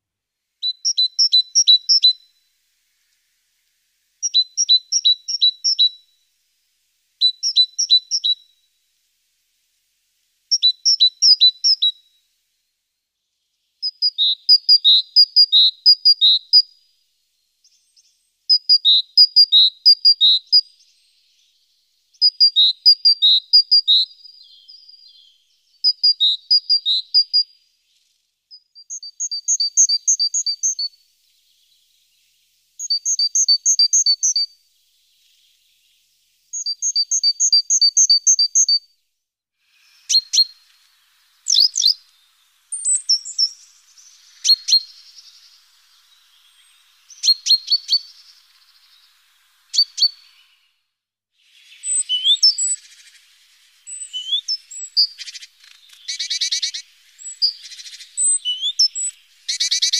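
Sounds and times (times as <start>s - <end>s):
songbird singing: 0.6s - 39.0s, 39.6s - 59.9s.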